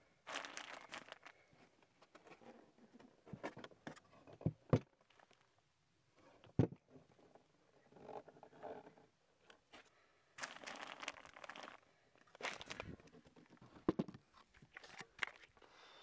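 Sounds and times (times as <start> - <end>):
crunching and rustling: 0.2 - 1.7, 9.7 - 13.7.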